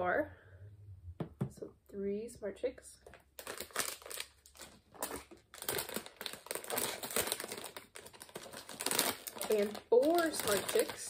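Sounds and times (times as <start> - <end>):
plastic bag crinkling and tearing: 3.1 - 11.0.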